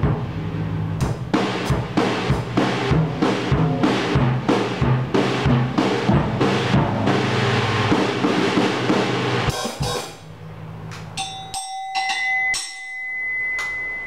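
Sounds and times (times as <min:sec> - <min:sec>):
drum kit playing: 0:00.0 - 0:12.8
ringing cymbal strikes: 0:11.1 - 0:14.0.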